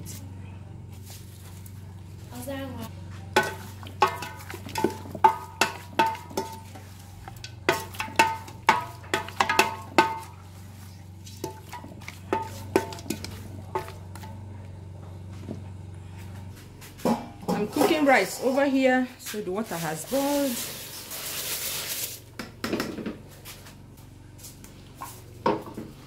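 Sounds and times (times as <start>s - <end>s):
steady low hum: 0.0s - 26.0s
wooden spoon knocking metal pot: 3.3s - 10.4s, 11.3s - 14.5s.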